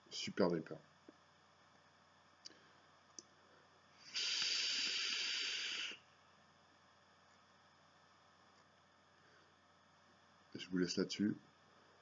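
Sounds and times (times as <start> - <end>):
vape coils sizzling: 4.0 - 6.1.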